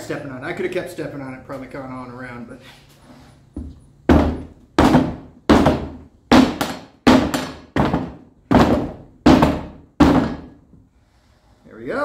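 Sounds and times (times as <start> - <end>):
rubber mallet thudding on tire: 3.6 - 10.6.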